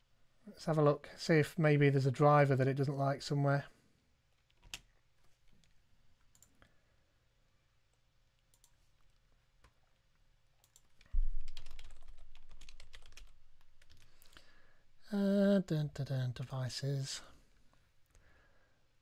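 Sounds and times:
keyboard and mouse clicks: 4.4s - 6.7s, 7.9s - 10.0s, 10.6s - 14.4s.

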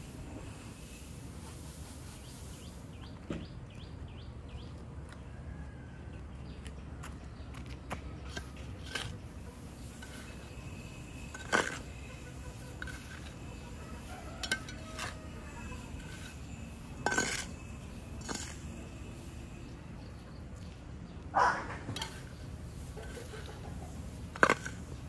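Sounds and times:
hard objects clinking and knocking: 15.9s - 18.8s.

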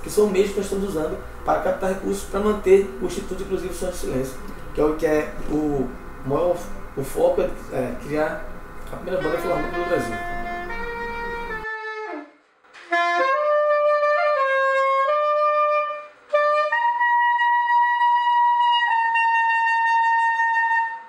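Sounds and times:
soprano saxophone melody: 9.1s - 21.0s.

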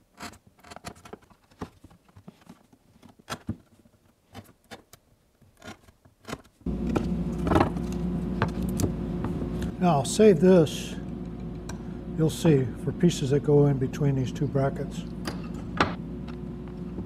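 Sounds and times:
knife blade scraping wood: 0.0s - 1.4s, 5.5s - 6.5s
steady machine hum: 6.7s - 17.0s.

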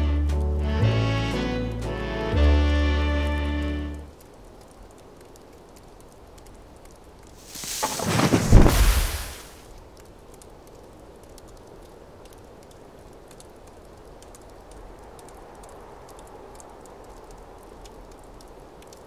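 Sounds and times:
faint crackles and ticks: 3.1s - 19.0s
steady rushing noise: 7.4s - 9.7s.

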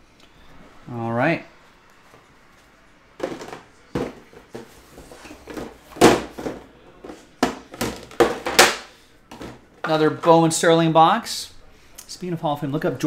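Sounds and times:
cardboard boxes knocking and rustling: 3.2s - 8.7s.

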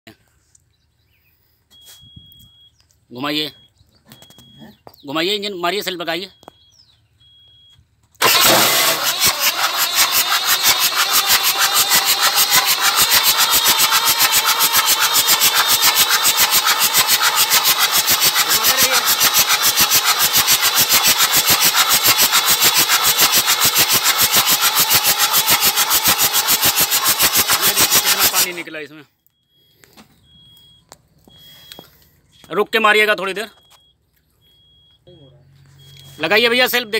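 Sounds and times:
water pumping from exhaust ports: 8.2s - 28.6s
diesel engine cranking on starter: 8.2s - 28.8s.

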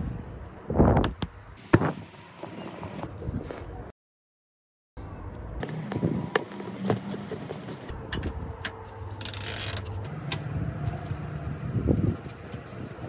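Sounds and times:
hand ratchet clicking: 9.2s - 9.9s.

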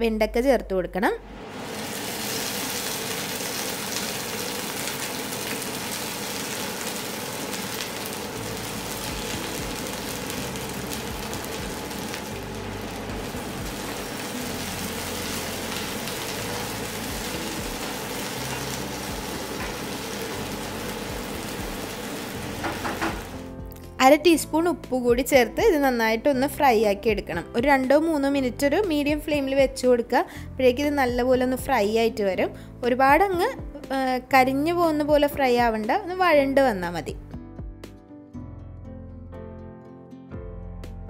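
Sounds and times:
okra sizzling in oil: 1.3s - 23.6s.

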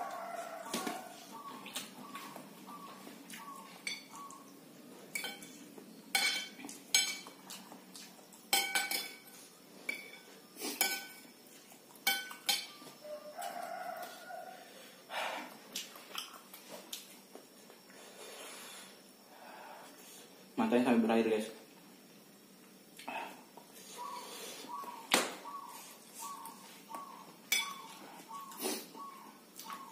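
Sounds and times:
cutlery clinking on plate: 5.1s - 7.6s, 8.5s - 9.3s, 9.9s - 11.3s, 12.0s - 12.8s, 27.5s - 27.9s.

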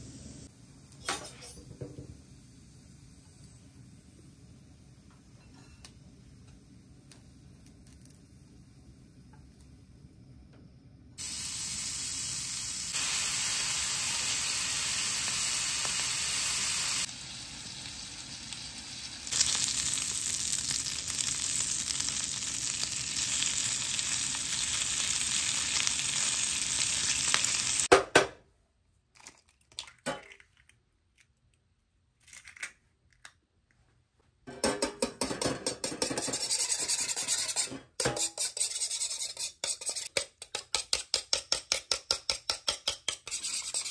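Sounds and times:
bacon sizzling: 11.2s - 27.9s
fork beating eggs in metal pan: 34.6s - 43.9s.

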